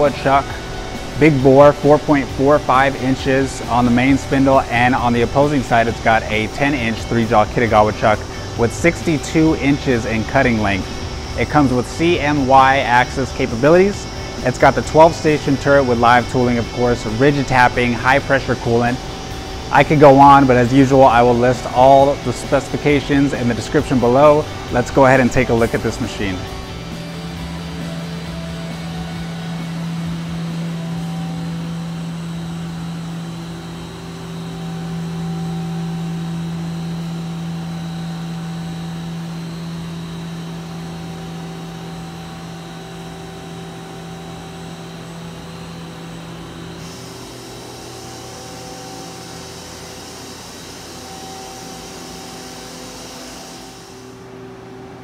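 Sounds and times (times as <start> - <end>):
machine hum: 0.0 - 55.0.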